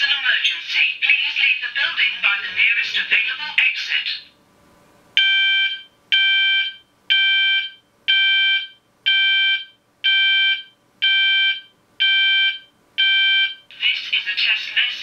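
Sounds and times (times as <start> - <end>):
pulsing fire alarm tone: 5.2 - 13.6.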